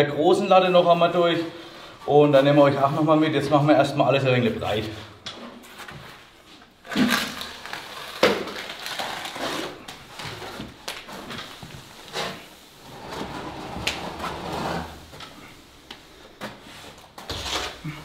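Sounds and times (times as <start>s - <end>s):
straightedge scraping wet plaster: 13.2s - 15.5s.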